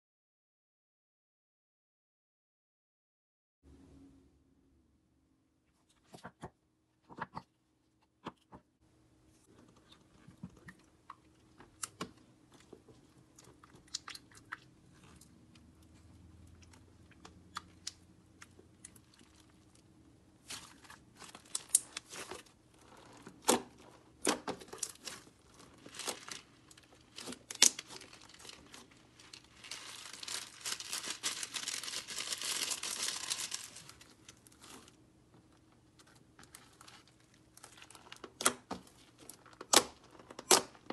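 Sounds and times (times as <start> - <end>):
crunching crackles of bead slime: 9.5 - 35.0, 36.0 - 40.8.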